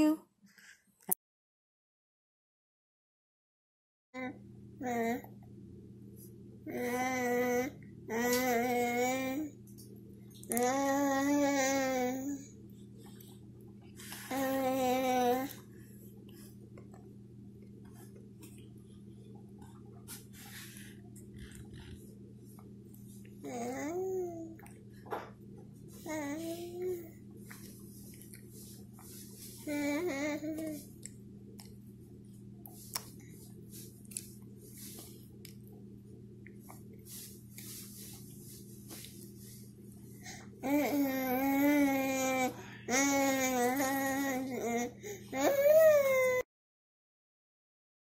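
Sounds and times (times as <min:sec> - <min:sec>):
steady low hum: 0:04.2 - 0:46.4
soft mouth sounds: 0:32.6 - 0:35.7
toddler chewing and smacking: 0:32.6 - 0:35.8.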